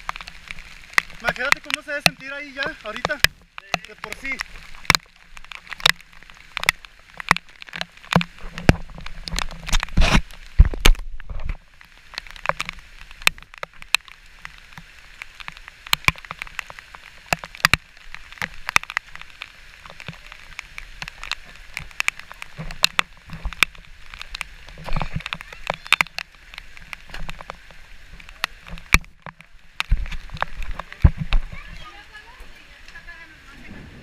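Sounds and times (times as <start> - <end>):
water drops ticking on housing: 0.0 - 9.9, 12.1 - 31.4
falling water hiss: 0.0 - 34.0.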